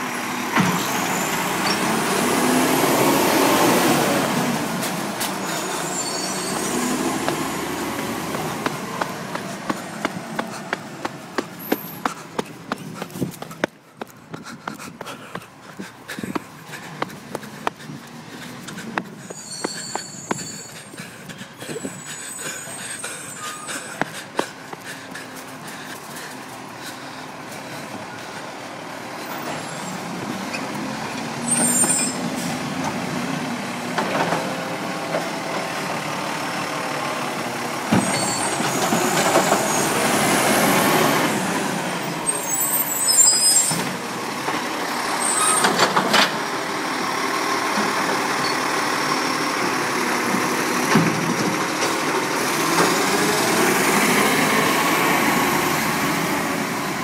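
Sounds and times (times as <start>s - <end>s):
garbage truck diesel engine revving: 0.0s - 13.6s, 26.6s - 57.0s.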